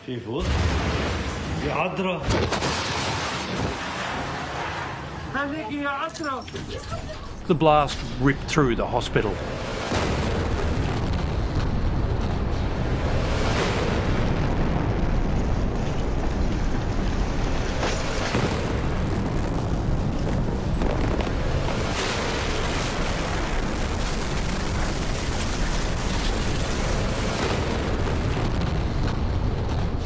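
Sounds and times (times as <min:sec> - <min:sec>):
explosion rumbling roar: 0:08.0 - 0:30.0.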